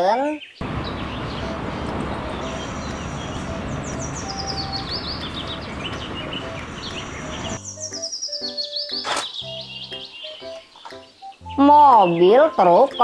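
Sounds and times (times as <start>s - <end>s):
birds chirping: 0.0s - 13.0s
concrete mixer truck running: 0.6s - 7.6s.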